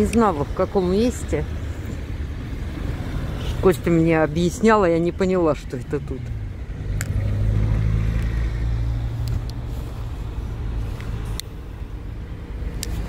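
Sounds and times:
car engine and road hum: 0.0 - 13.0.

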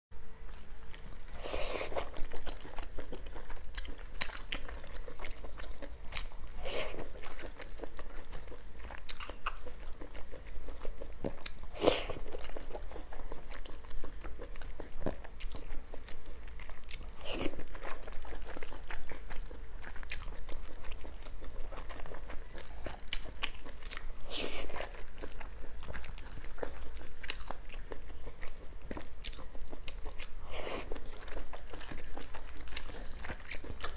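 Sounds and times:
person chewing food: 0.4 - 33.9.

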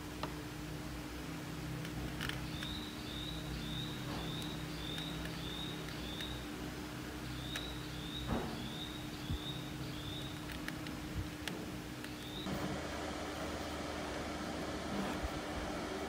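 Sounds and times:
low electrical hum: 0.0 - 16.0
bird chirping: 2.3 - 6.5, 7.2 - 10.9, 12.0 - 12.5.

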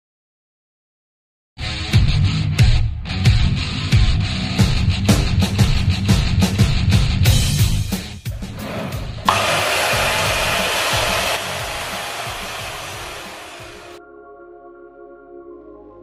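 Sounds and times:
electric mitre saw running: 8.6 - 14.0.

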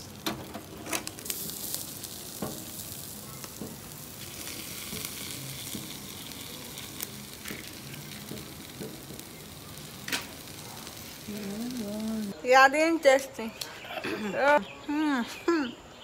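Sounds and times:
chicken sizzling on grill: 0.0 - 12.5.

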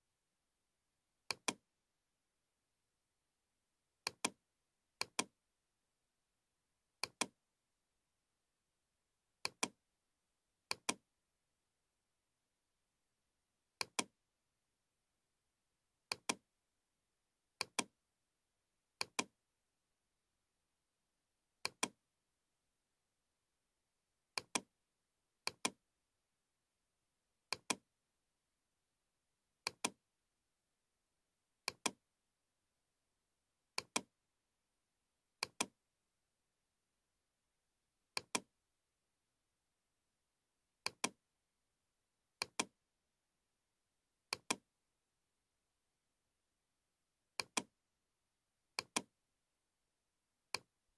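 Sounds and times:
computer mouse clicks: 1.3 - 1.6, 4.0 - 4.4, 5.0 - 5.3, 7.0 - 7.4, 9.4 - 9.8, 10.7 - 11.0, 13.8 - 14.2, 16.1 - 16.4, 17.6 - 17.9, 19.0 - 19.4, 21.6 - 22.0, 24.4 - 24.7, 25.4 - 25.8, 27.5 - 27.8, 29.6 - 30.0, 31.6 - 32.0, 33.8 - 34.1, 35.4 - 35.8, 38.1 - 38.5, 40.8 - 41.2, 42.4 - 42.8, 44.3 - 44.7, 47.4 - 47.7, 48.8 - 49.1, 50.5 - 50.7.

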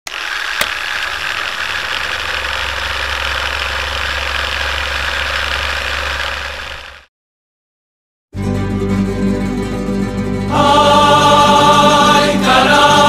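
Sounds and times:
film projector whirring: 0.1 - 7.1
low hum: 0.1 - 7.1.

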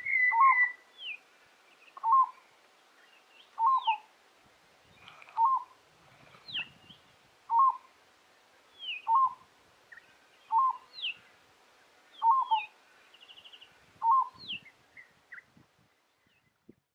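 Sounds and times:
bird high downward whistles: 0.0 - 1.2
dove cooing: 2.0 - 2.4, 3.6 - 4.1, 5.1 - 5.8, 7.5 - 7.9, 12.2 - 12.7.

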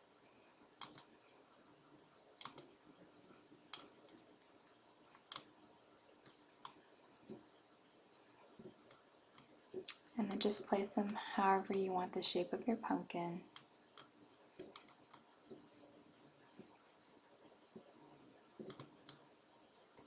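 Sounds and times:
computer mouse clicking: 0.8 - 1.2, 2.4 - 2.8, 3.7 - 4.5, 5.1 - 5.5, 8.6 - 10.7, 13.5 - 15.6, 18.6 - 19.3.

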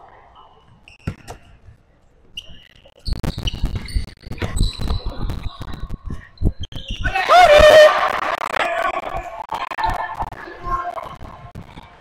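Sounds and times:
sneakers thudding and squeaking: 0.5 - 1.6, 2.3 - 7.1.

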